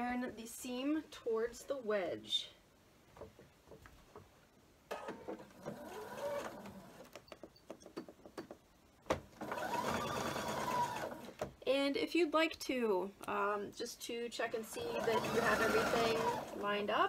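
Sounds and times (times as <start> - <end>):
sewing machine stitching: 5.0 - 7.2, 9.4 - 11.4, 14.6 - 16.8.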